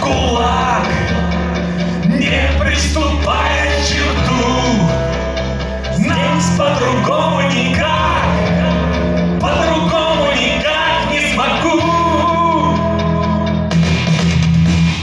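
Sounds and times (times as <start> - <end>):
man singing into a microphone: 0.0 - 5.3, 5.9 - 13.6.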